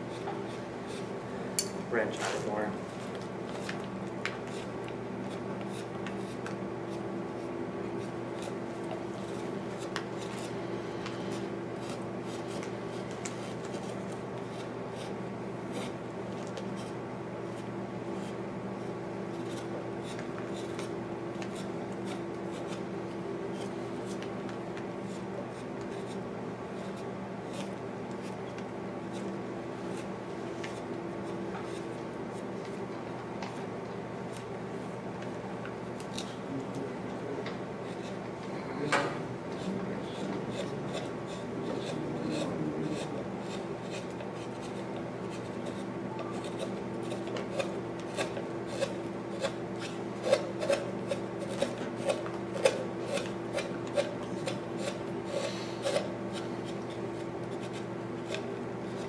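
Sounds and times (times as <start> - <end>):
low room hum: 0.0 - 59.0
chisel scraping wood: 39.1 - 59.0.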